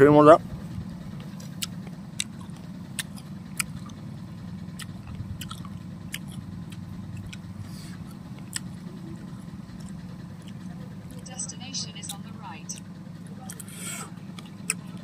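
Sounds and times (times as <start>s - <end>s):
low background hum: 0.0s - 15.0s
person chewing crunchy snacks: 1.5s - 4.0s, 4.7s - 8.8s, 9.7s - 11.2s.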